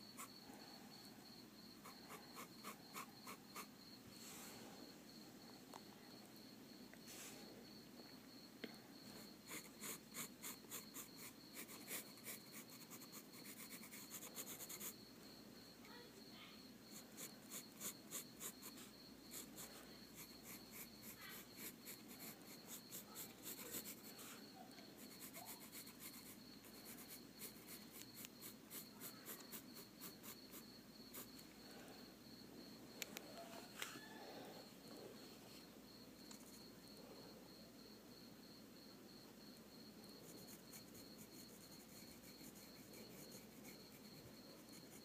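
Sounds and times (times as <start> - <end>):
faint high whine: 0.0 - 45.0
pencil scratching on paper: 1.8 - 3.7, 9.4 - 15.0, 16.9 - 31.4, 40.2 - 45.0.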